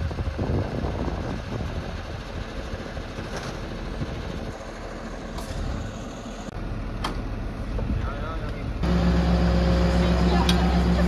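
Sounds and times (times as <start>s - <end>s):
fire truck engine running: 0.0s - 11.0s.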